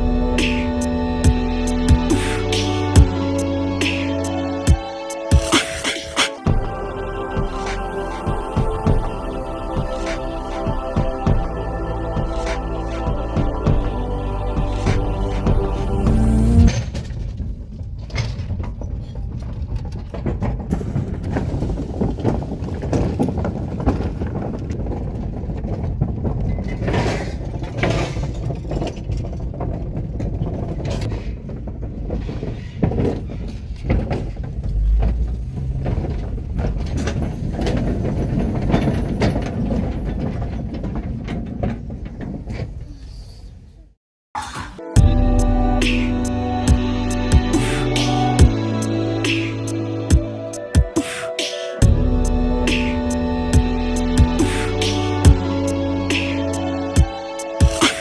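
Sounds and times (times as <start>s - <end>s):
car road noise from inside: 14.5s - 16.8s, 34.4s - 38.2s
tyres knocking over wooden planks: 16.7s - 42.8s.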